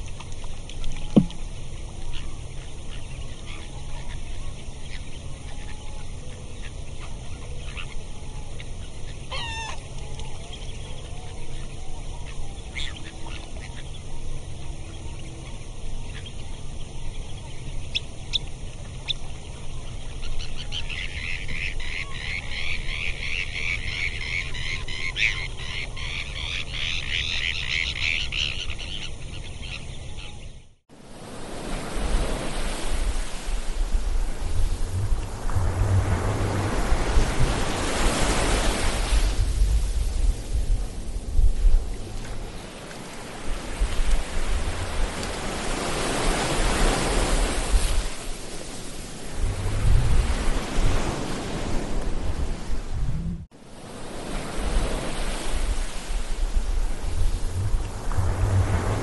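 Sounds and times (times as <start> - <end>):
waves: 0.0 - 59.0
wind: 0.0 - 59.0
low rumble: 33.9 - 37.9, 56.7 - 59.0.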